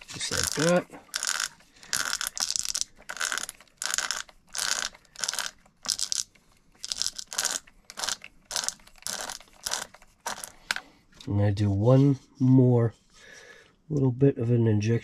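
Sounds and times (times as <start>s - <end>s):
gears rasping: 0.0s - 10.8s.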